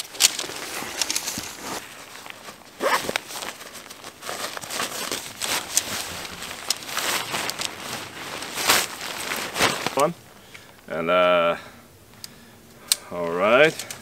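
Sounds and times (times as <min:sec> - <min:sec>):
material rustling and crinkling: 0:00.0 - 0:10.8.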